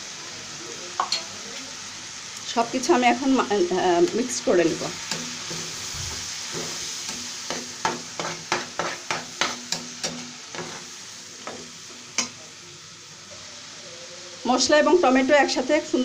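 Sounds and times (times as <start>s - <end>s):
masala sizzling in oil: 0.0s - 16.0s
metal spatula scraping pan: 5.0s - 10.9s.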